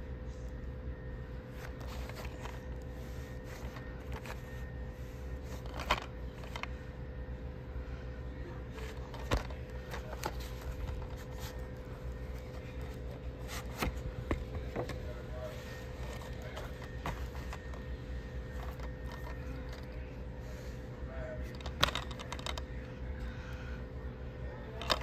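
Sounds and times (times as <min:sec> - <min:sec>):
steady low hum: 0:00.0 - 0:25.0
plastic case clicks and scrapes: 0:21.5 - 0:22.7.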